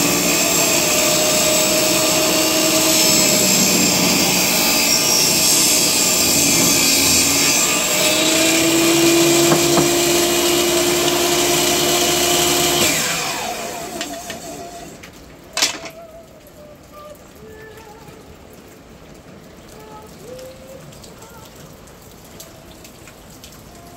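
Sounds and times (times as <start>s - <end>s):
saw blade winding down whine: 0.0s - 15.0s
table saw ripping wood: 0.0s - 15.0s
sharp knock: 9.4s - 10.1s.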